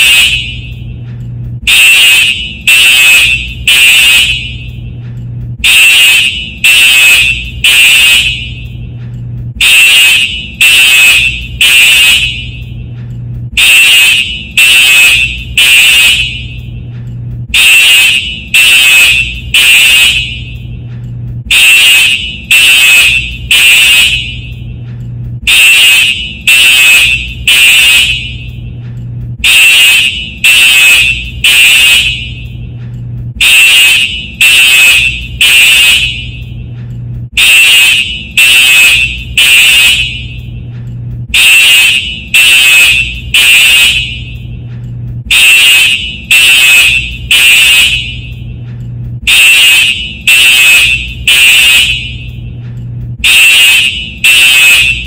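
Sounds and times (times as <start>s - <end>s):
fire alarm horn blasts: 0.0s - 55.0s.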